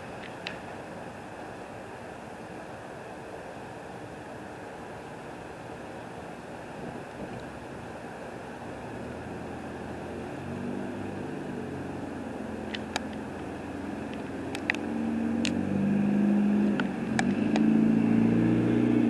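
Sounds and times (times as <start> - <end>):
steady background hiss: 0.0 - 19.0
vehicle engine running: 8.8 - 19.0.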